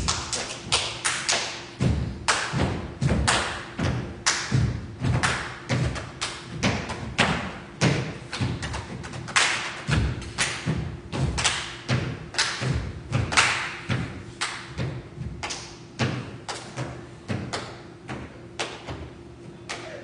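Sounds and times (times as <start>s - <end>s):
percussive beat with thumps and claps: 0.0s - 20.0s.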